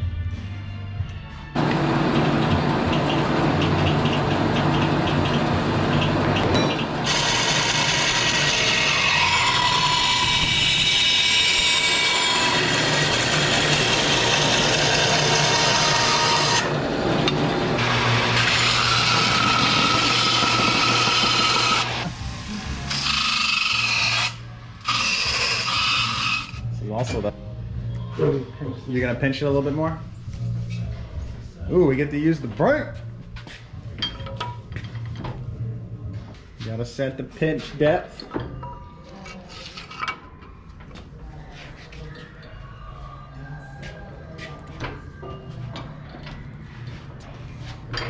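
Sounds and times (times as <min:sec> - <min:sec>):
bandsaw cutting metal: 0:01.6 - 0:26.6
wire wheel brushing metal: 0:01.6 - 0:26.8.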